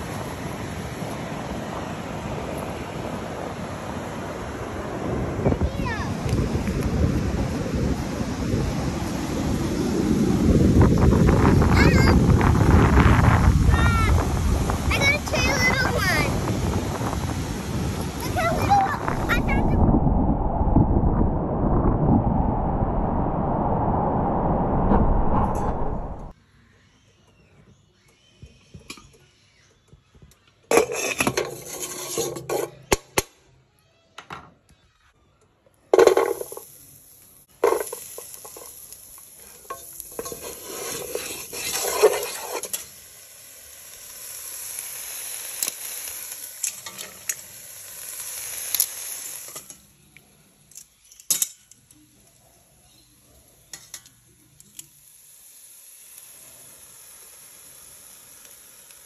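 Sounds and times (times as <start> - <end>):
steady hiss: 0.0 - 20.5, 36.0 - 59.0
shells clattering in a saucepan: 36.0 - 36.8, 37.6 - 43.0, 45.5 - 49.8, 50.7 - 51.9.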